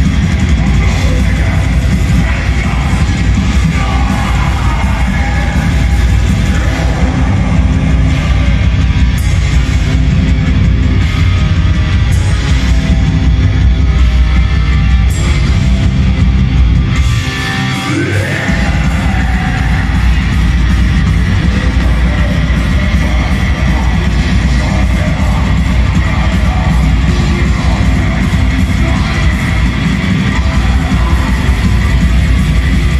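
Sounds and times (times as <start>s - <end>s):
metal band playing live: 0.0s - 32.9s.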